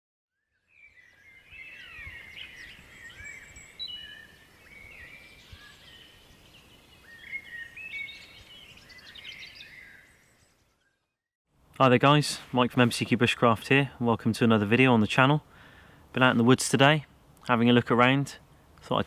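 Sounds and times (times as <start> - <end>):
songbirds singing: 0.4 - 11.2.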